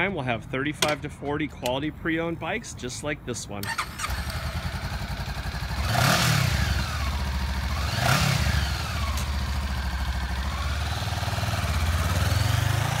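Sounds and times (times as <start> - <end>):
motorcycle engine idling: 3.6 - 13.0
motorcycle engine revving: 3.6 - 13.0.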